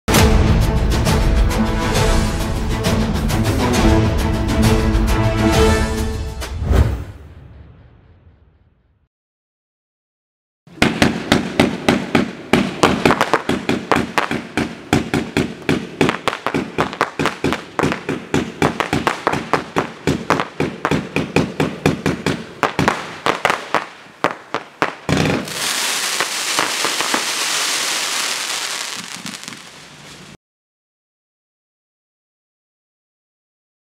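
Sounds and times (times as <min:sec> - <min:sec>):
fireworks sharp bangs: 0:10.7 - 0:30.4
fireworks crackling hiss: 0:22.7 - 0:30.4.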